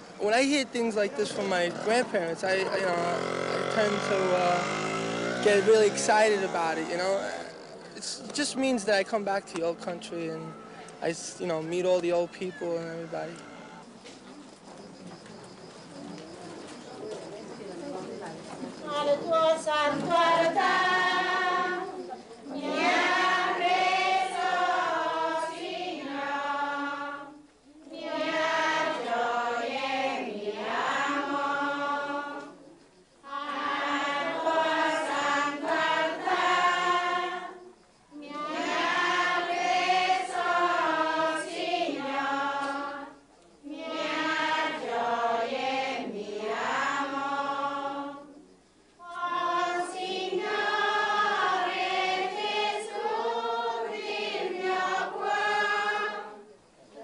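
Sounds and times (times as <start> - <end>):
choir singing slow melody: 1.2 - 8.4, 18.7 - 57.0.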